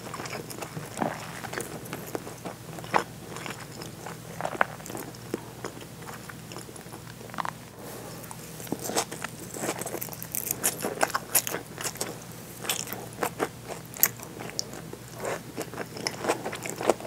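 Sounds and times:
close chewing mouth sounds: 0.0s - 7.6s, 8.6s - 17.0s.

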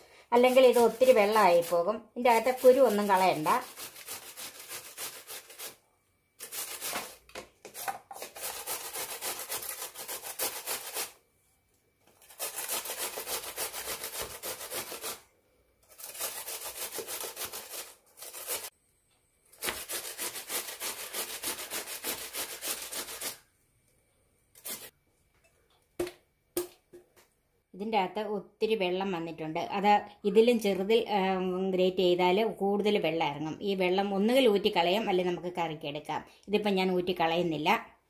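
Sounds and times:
cucumber grated on box grater: 0.4s - 5.8s, 6.4s - 11.2s, 12.1s - 15.2s, 15.8s - 18.7s, 19.6s - 23.4s, 24.6s - 24.9s.

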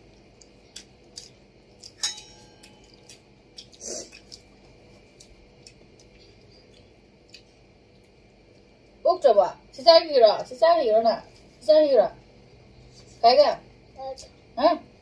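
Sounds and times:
plates and bowls clinking: 2.0s - 3.0s.

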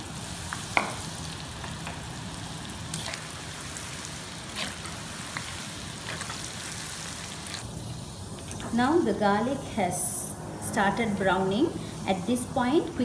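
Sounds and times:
garlic sizzling in hot oil: 0.0s - 13.0s.

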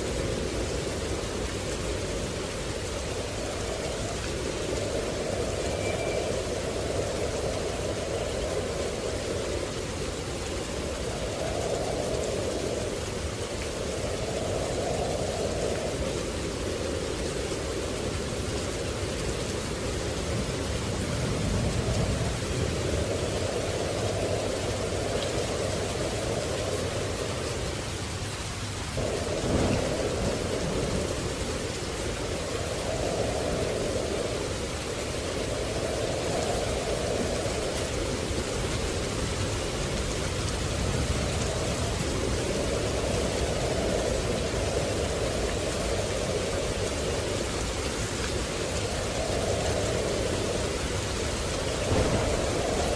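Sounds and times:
steady rain: 0.0s - 52.9s
thunder rumbling: 0.0s - 52.9s
thunder crack: 51.8s - 52.9s.

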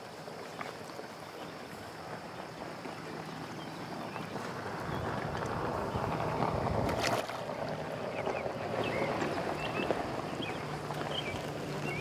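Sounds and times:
wind: 0.0s - 12.0s
fish splashing at the surface: 4.4s - 12.0s.

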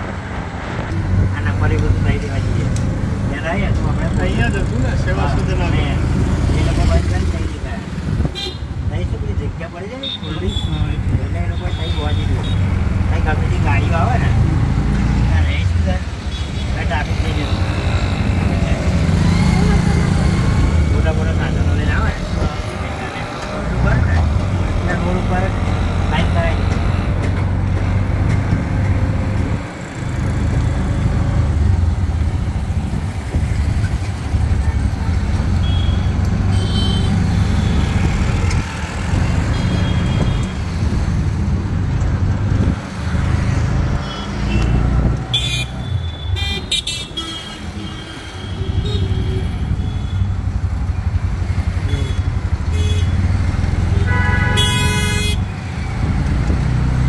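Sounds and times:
auto-rickshaw engine running: 1.0s - 8.2s, 10.5s - 57.0s
horn toots: 53.9s - 55.5s.

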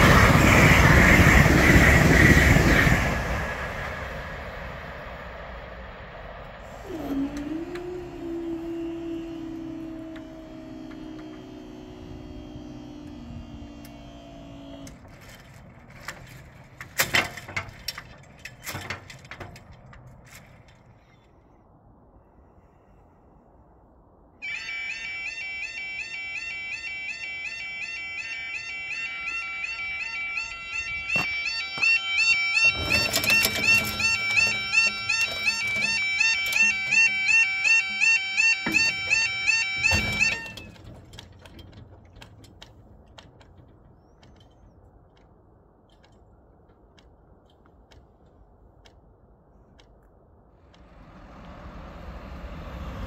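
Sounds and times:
faulty alarm strange tone: 6.6s - 15.0s, 24.4s - 41.6s
level crossing alarms warbling: 6.7s - 15.0s, 24.4s - 41.4s.

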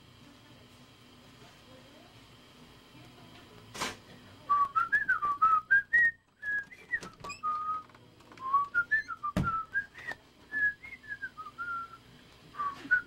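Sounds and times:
person whistling a tune: 4.5s - 7.8s, 8.4s - 12.0s, 12.6s - 13.0s
heavy thump: 9.4s - 9.6s.

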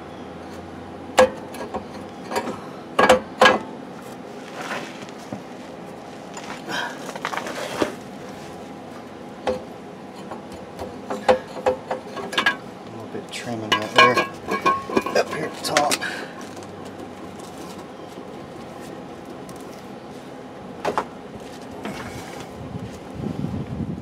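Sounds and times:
steel bracket clanking on axle: 9.4s - 12.7s, 13.4s - 16.6s.

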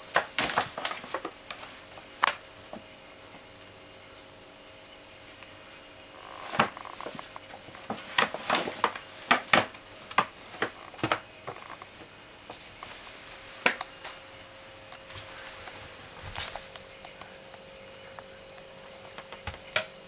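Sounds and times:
paper bag crinkling: 15.0s - 17.0s.

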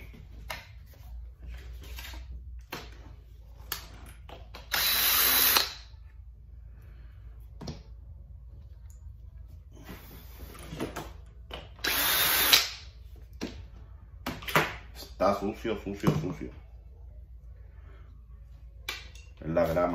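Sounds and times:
cordless drill running: 4.7s - 5.8s, 11.8s - 12.7s.

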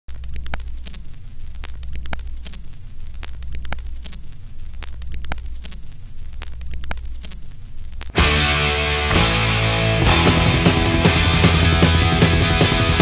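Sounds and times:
low electrical hum: 0.1s - 8.2s
sharp clicks: 0.1s - 8.2s
crackling static: 0.1s - 13.0s.

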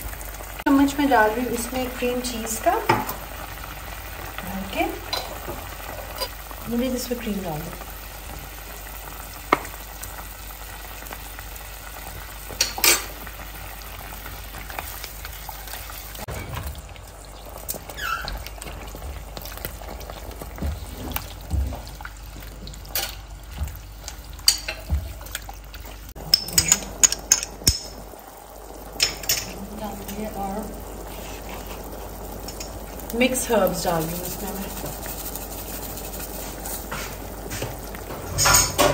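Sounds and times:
sauce sizzling in a pan: 0.0s - 38.9s
spatula stirring and scraping: 17.7s - 27.9s, 31.0s - 38.4s.

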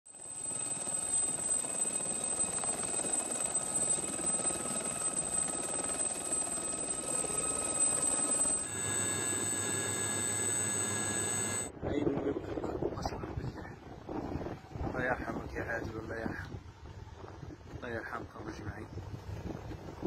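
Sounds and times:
steady hum with held tones: 0.1s - 11.7s
helicopter rotor noise: 0.1s - 16.5s
high turbine whine: 0.1s - 18.6s.

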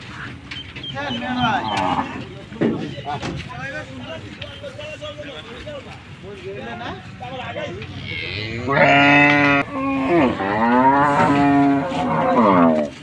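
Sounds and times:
bull mooing: 1.1s - 2.3s, 7.8s - 13.0s.

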